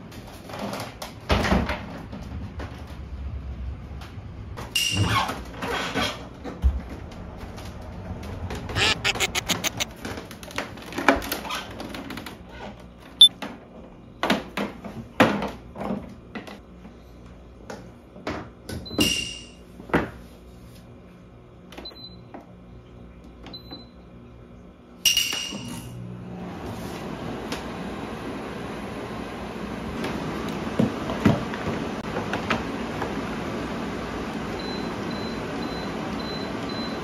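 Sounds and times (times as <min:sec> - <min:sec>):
air conditioner fan running: 0:00.0 - 0:08.8, 0:09.9 - 0:37.0
control panel beeps: 0:08.8 - 0:09.8.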